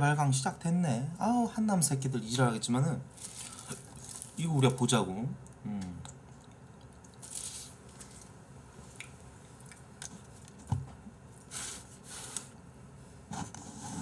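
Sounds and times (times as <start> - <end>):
chewing and crunching food: 3.2 - 4.4, 6.0 - 10.7.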